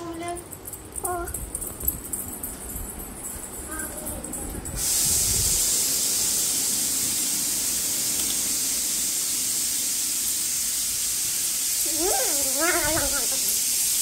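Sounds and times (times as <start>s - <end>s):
steady bright hiss: 3.6s - 14.0s.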